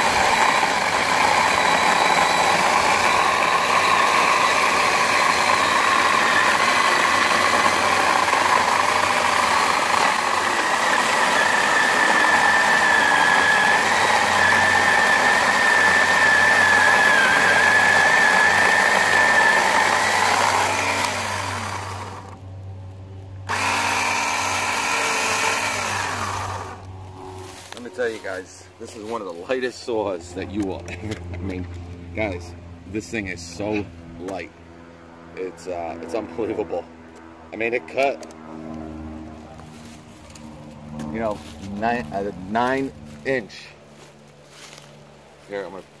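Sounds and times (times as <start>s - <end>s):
electric chainsaw cutting log: 0.0s - 22.4s, 23.4s - 28.4s, 35.4s - 43.6s.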